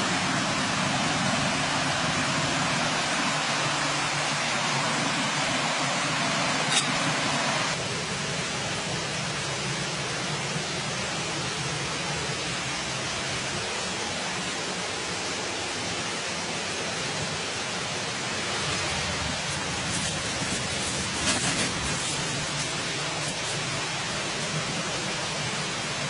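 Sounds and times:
wood fire hissing: 18.4s - 25.9s.

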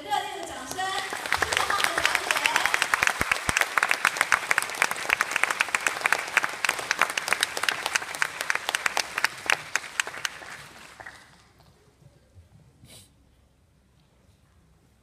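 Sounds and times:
audience applauding: 0.4s - 11.6s.

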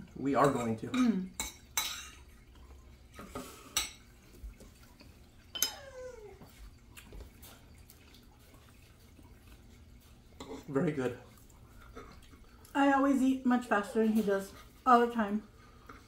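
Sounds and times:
forks clinking against plates: 0.4s - 2.3s, 5.5s - 5.9s.

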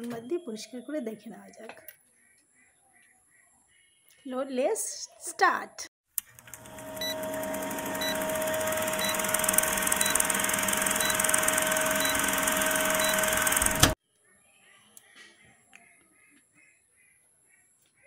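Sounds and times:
film projector whirring rattle: 6.2s - 14.0s
short blips: 8.0s - 14.0s.

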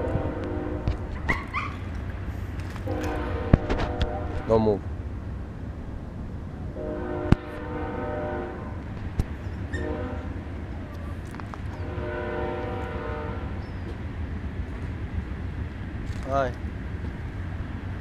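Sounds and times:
horn blasts: 0.0s - 1.1s, 2.8s - 4.7s, 6.8s - 8.8s, 9.7s - 10.4s, 11.8s - 13.6s.

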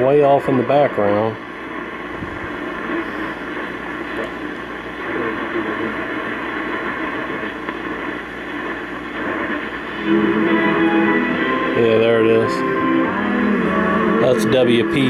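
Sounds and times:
faint distant radio station: 0.0s - 15.0s
radio static hiss: 0.0s - 15.0s.

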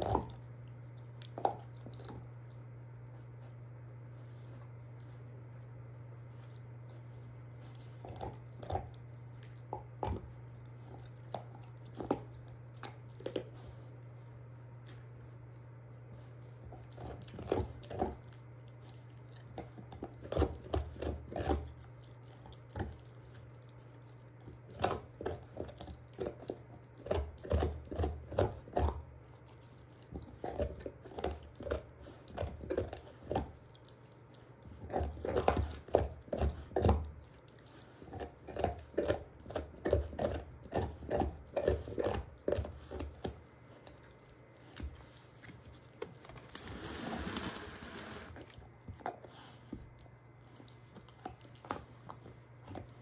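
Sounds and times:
dog crunching a bone: 0.0s - 53.0s.

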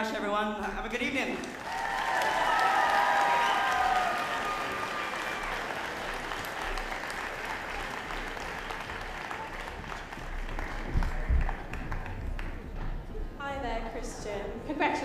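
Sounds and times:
audience applauding: 1.4s - 12.8s.

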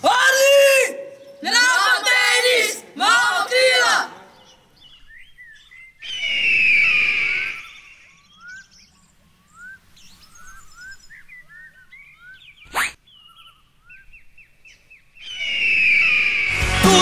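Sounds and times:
small birds chirping: 3.7s - 16.2s
bird of prey screaming cry: 6.0s - 8.2s, 15.2s - 16.5s.

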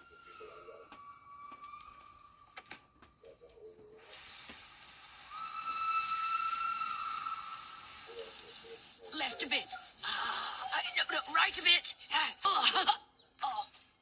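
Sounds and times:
steam locomotive hissing: 4.0s - 11.7s
steam whistle blowing: 5.2s - 8.0s.

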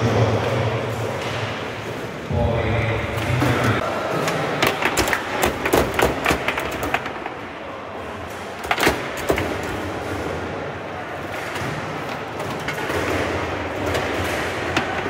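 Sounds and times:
foosball knocks and clacks: 4.6s - 7.4s.

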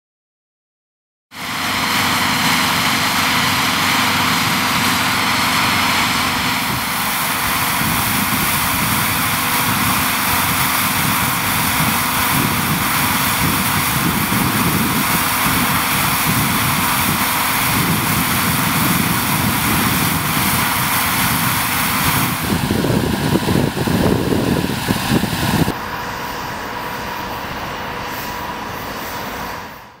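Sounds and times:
strong wind buffeting microphone: 2.3s - 25.8s.

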